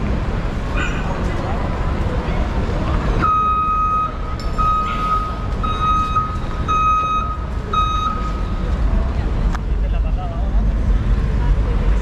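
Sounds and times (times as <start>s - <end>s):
low street rumble: 0.0s - 12.0s
vehicle reversing alarm beeping: 3.2s - 8.7s.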